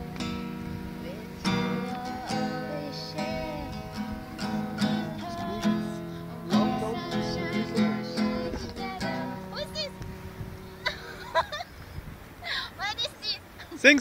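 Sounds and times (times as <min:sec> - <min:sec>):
acoustic guitar strummed chords: 0:00.0 - 0:11.6.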